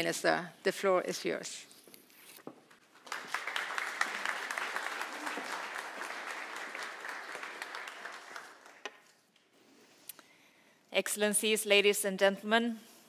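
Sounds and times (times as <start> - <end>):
audience applauding: 2.9 - 9.2.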